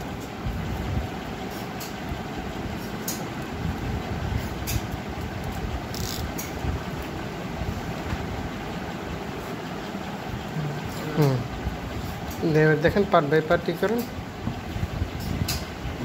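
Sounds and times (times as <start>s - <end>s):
low background rumble: 0.0s - 12.3s.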